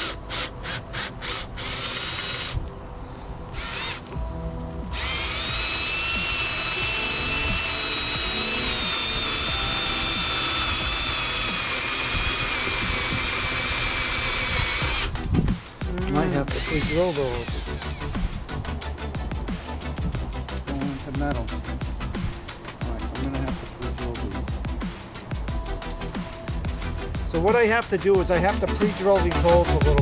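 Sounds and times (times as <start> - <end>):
cordless drill driving screw: 0.0 - 2.6, 3.5 - 4.0, 5.0 - 15.1, 16.5 - 18.1.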